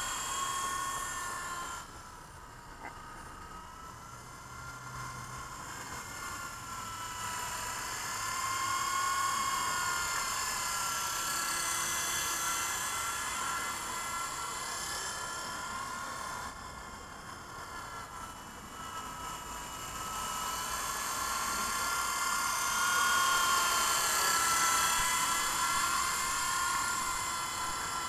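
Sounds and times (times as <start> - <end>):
toy helicopter rotor whining: 0.0 - 28.0.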